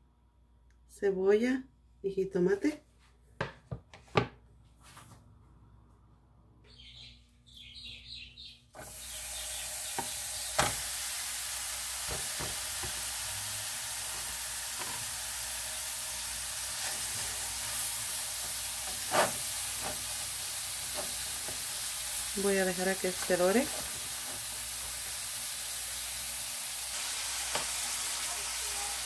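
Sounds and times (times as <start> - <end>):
sausage sizzling in pan: 8.8 - 29.0.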